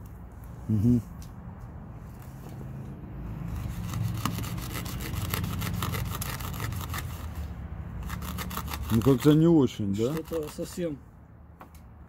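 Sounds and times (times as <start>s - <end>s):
knife sawing through rope: 3.5s - 11.0s.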